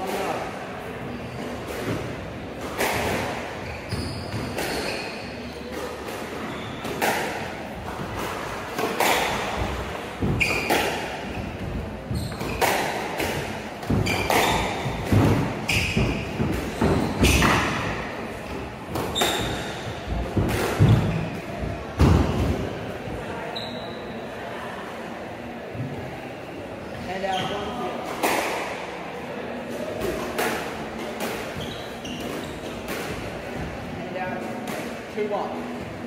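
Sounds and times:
shoes squeaking on floor: 2.8s - 7.3s, 8.2s - 21.7s, 23.4s - 24.2s, 27.0s - 27.9s, 31.4s - 33.0s.

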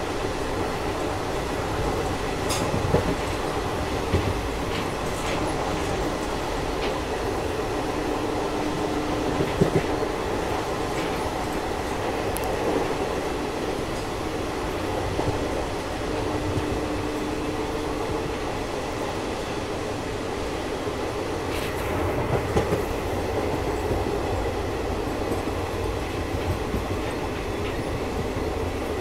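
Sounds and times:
rushing wind: 0.0s - 29.0s
train wheels rumbling on rails: 0.0s - 29.0s
sharp rail clacks: 2.4s - 7.0s.

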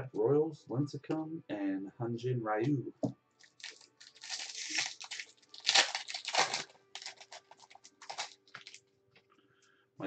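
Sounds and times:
foil wrapper tearing and crinkling: 3.4s - 8.8s.

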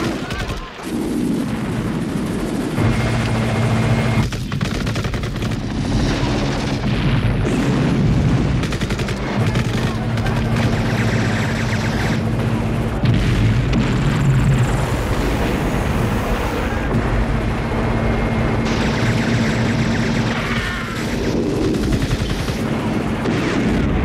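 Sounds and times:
machine-gun fire: 0.0s - 16.2s, 18.3s - 24.0s
helicopter hum: 0.0s - 24.0s
explosions: 5.6s - 24.0s.

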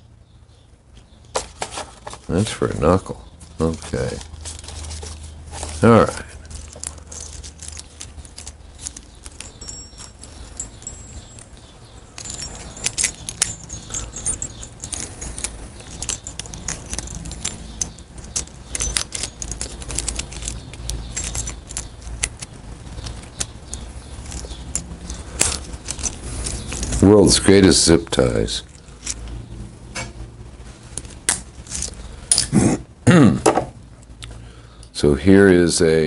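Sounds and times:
metal parts clinking in plastic tray: 3.8s - 11.5s, 12.2s - 27.1s.

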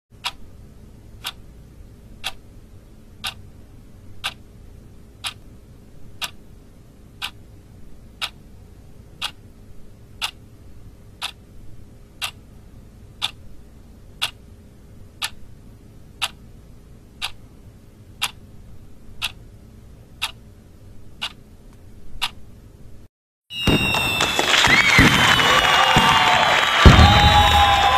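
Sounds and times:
clock ticking: 0.2s - 0.5s, 1.2s - 1.4s, 2.2s - 2.4s, 3.2s - 3.4s, 4.2s - 4.4s, 5.2s - 5.5s, 6.2s - 6.4s, 7.2s - 7.4s, 8.2s - 8.4s, 9.2s - 9.4s, 10.2s - 10.4s, 11.2s - 11.4s, 12.2s - 12.4s, 13.2s - 13.4s, 14.2s - 14.4s, 15.2s - 15.4s, 16.2s - 16.4s, 17.2s - 17.5s, 18.2s - 18.4s, 19.2s - 19.4s, 20.2s - 20.4s, 21.2s - 21.4s, 22.2s - 22.4s
faint steady hum: 0.2s - 27.9s.

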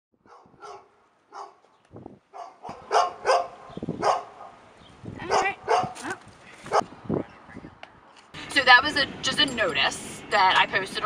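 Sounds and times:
dog barking: 0.2s - 1.7s, 2.3s - 4.6s, 5.2s - 6.8s.

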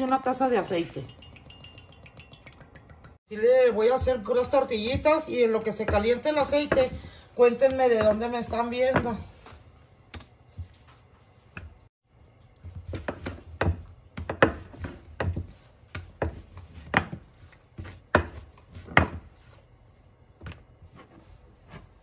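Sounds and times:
rolling pin knocking on dough: 4.0s - 9.2s, 12.8s - 19.3s.

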